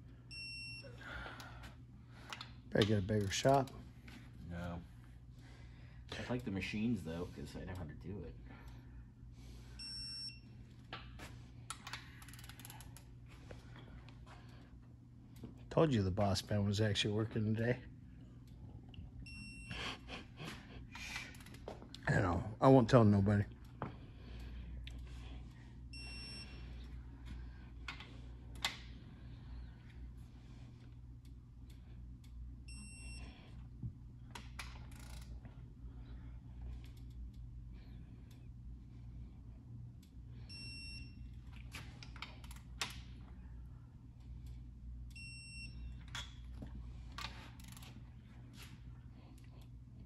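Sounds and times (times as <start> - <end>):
low steady hum: 0.0 - 50.0
torque wrench beep: 0.3 - 0.9, 9.8 - 10.5, 19.3 - 19.8, 26.0 - 26.6, 32.7 - 33.4, 40.5 - 41.3, 45.1 - 46.3.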